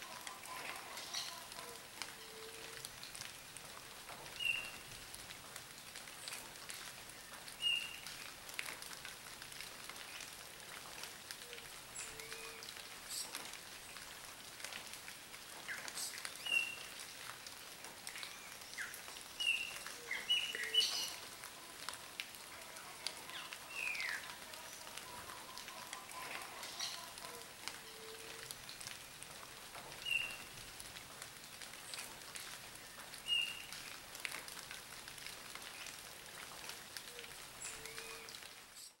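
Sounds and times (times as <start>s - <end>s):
rain pattering and dripping: 0.0s - 39.0s
small birds chirping: 18.2s - 21.4s.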